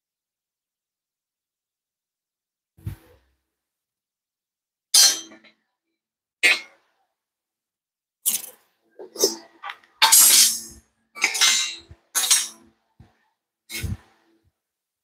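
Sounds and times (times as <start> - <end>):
coil springs clanking on concrete: 8.2 - 12.7.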